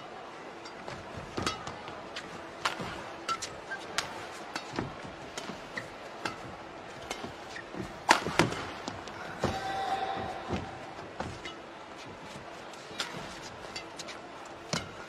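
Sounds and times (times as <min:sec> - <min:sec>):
crowd noise: 0:00.0 - 0:15.0
shoes squeaking on court: 0:00.8 - 0:08.5, 0:10.3 - 0:14.9
racket hitting shuttlecock: 0:02.6 - 0:10.7.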